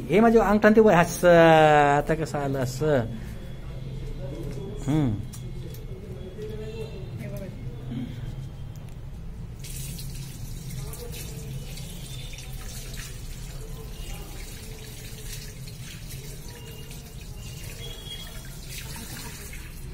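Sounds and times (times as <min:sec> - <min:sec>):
tap water splashing into basin: 0:09.6 - 0:19.9.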